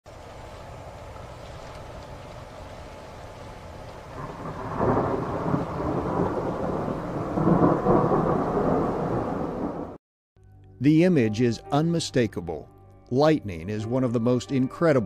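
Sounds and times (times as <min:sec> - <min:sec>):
thunder rumbling: 0:00.2 - 0:10.0.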